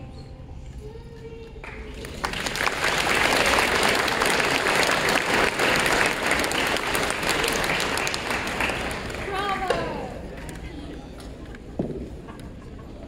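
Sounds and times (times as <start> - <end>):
audience applauding: 1.6 - 10.5.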